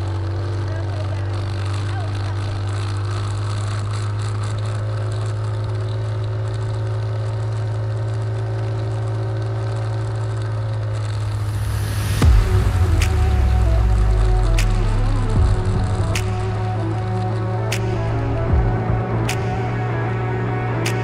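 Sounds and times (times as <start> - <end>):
quad engine running: 0.0 - 21.0
loud thump: 11.2 - 16.8.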